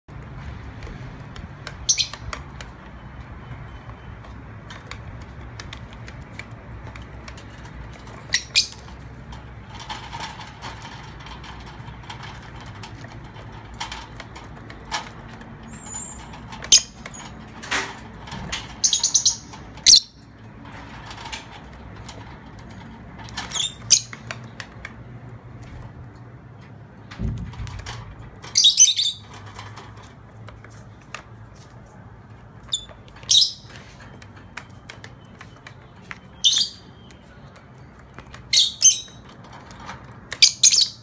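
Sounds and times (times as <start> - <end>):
lovebirds chirping: 1.7 - 5.2, 7.2 - 9.1, 18.8 - 20.3, 23.4 - 24.6, 28.4 - 29.4, 32.6 - 39.4, 40.3 - 41.0.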